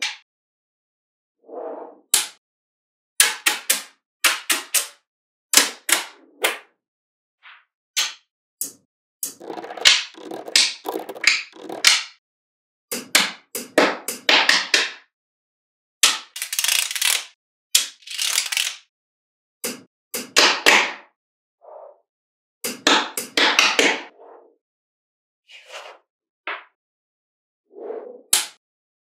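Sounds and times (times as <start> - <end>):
magnetic balls clicking: 9.2 - 12.0.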